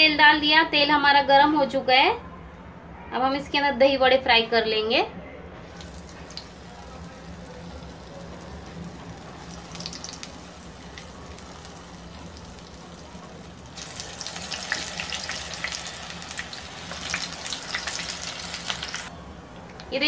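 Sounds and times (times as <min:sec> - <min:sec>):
batter sizzling in hot oil: 0:05.7 - 0:19.1.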